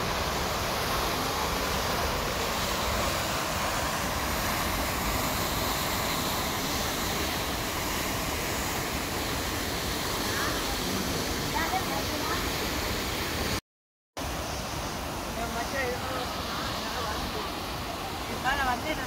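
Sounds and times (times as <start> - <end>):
water gushing from a sluice: 0.0 - 13.6.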